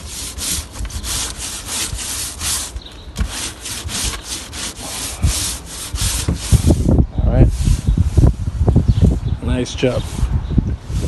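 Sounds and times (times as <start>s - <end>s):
push broom scrubbing deck: 0.0s - 7.8s.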